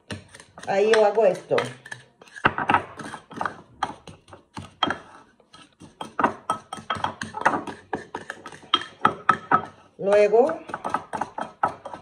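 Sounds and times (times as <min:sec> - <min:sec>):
wooden spatula scraping ceramic bowl: 0:00.0 - 0:12.0.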